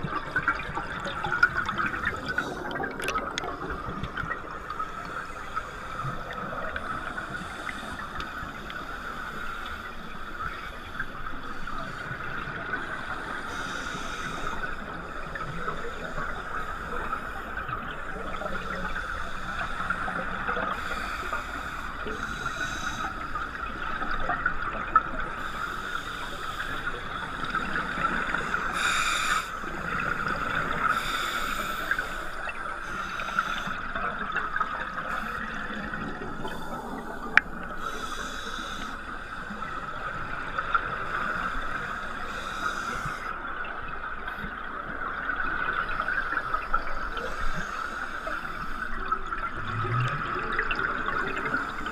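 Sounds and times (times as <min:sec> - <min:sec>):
muffled underwater hiss: 0:00.0 - 0:51.9.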